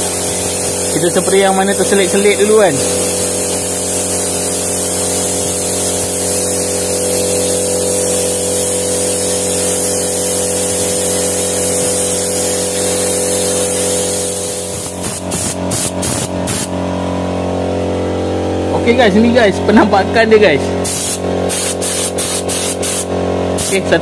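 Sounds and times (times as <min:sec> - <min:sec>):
motor hum: 0:00.0 - 0:08.1, 0:12.8 - 0:21.5
spray gun hissing: 0:00.0 - 0:16.7, 0:20.8 - 0:23.9.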